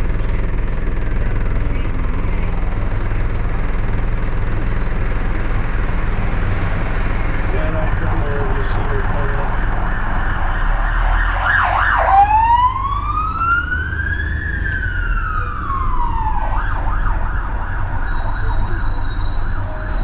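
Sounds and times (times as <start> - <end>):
bus engine rumbling: 0.0 - 20.0
siren yelping and wailing: 9.4 - 20.0.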